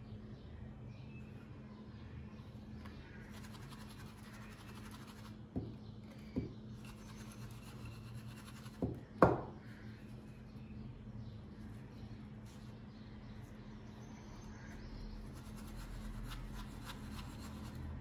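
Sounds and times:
steady low hum: 0.0s - 18.0s
glass dish knocking on table: 8.8s - 9.6s.

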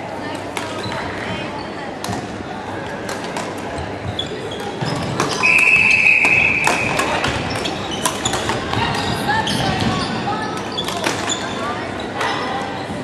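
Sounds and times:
sports shoe squeaking on court: 4.0s - 13.0s.

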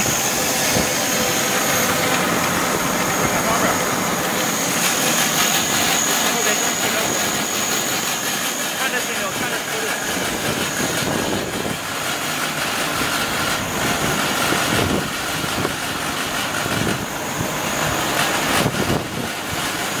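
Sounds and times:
thin high whine: 0.0s - 11.9s
grinding mill running: 0.0s - 20.0s.

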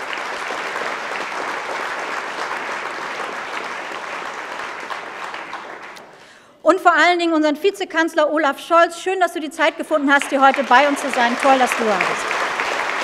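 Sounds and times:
audience applause: 0.0s - 6.3s, 10.1s - 13.0s.

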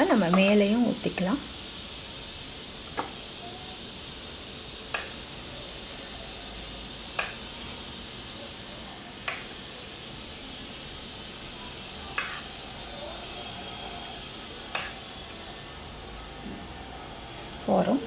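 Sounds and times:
steady faint hiss: 0.0s - 18.0s
metal spoon clicking on dish: 12.1s - 12.4s.

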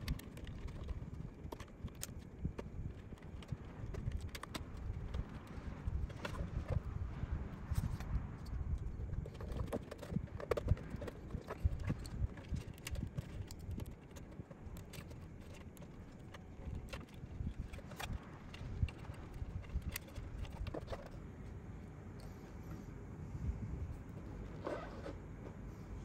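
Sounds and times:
plastic parts clicking and knocking: 0.0s - 6.9s, 9.0s - 21.2s.

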